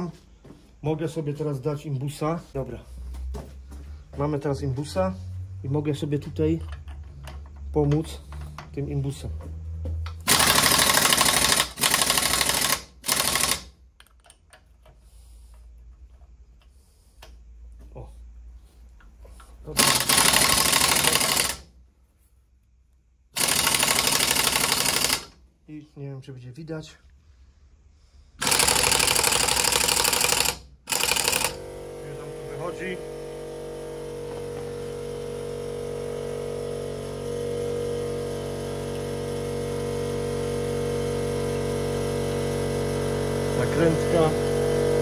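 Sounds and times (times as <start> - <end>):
power tool rattling: 10.2 - 14.4, 19.7 - 21.7, 23.3 - 25.4, 28.4 - 45.0.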